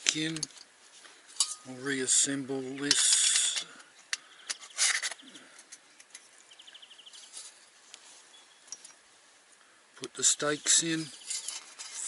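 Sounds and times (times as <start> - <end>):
metal parts clinking: 2.8 - 3.8, 4.5 - 6.1, 11.0 - 12.0.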